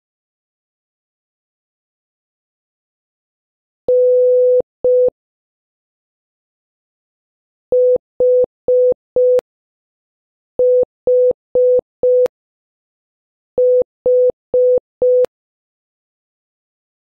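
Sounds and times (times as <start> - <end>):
morse code beeps: 10.6 - 12.3.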